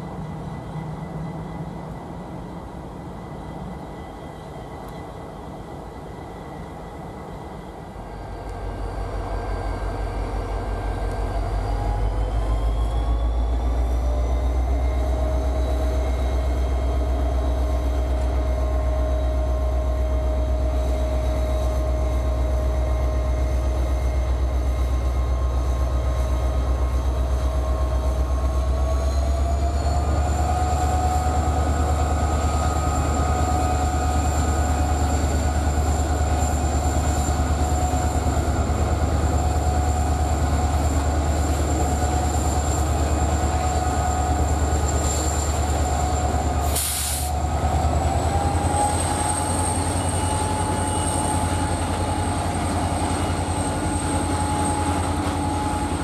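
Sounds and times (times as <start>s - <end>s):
diesel locomotive engine droning: 0.0s - 56.0s.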